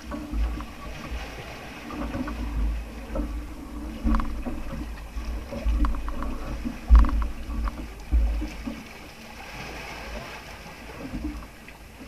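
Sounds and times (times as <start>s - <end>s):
low rumbling buffets: 0.0s - 9.0s
water sloshing around boat: 0.0s - 12.0s.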